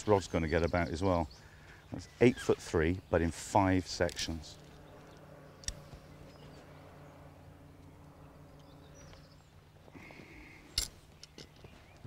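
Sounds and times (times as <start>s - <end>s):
steady low hum: 0.0s - 12.0s
rod sections clicking together: 10.7s - 11.6s.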